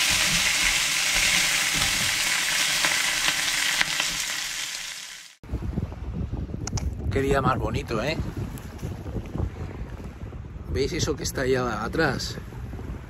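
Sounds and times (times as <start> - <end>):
lobsters sizzling on a griddle: 0.0 - 5.4
sharp crackles: 0.0 - 5.4.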